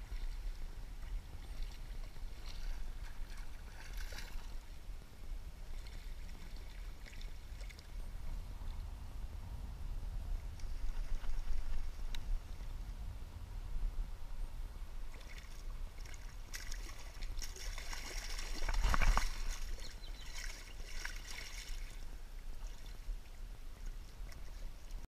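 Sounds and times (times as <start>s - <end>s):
steady low rumble: 0.0s - 20.4s
fish thrashing in water: 15.2s - 21.9s.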